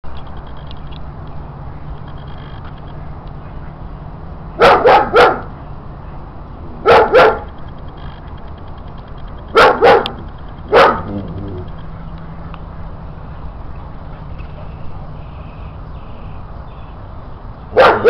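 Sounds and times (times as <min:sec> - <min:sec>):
dog barking: 0:04.6 - 0:05.5, 0:06.8 - 0:07.5, 0:09.6 - 0:11.2, 0:17.7 - 0:18.0.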